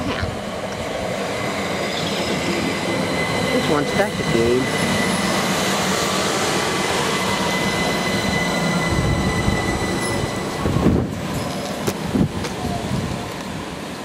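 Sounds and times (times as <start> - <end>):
train wheels rushing on rail: 0.0 - 14.0
wind buffeting microphone: 7.4 - 13.8.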